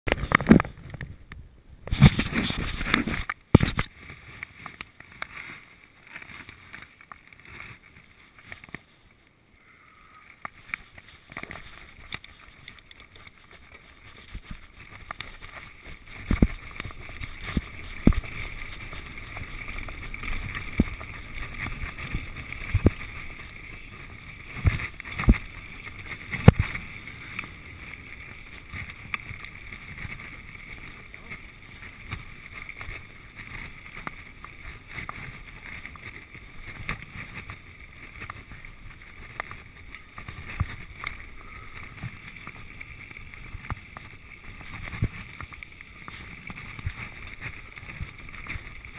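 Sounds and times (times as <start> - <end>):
camera handling bumps and scrapes: 0.1 - 1.2, 1.9 - 8.9, 10.4 - 26.9
bike tyres rolling on dirt: 0.1 - 48.9.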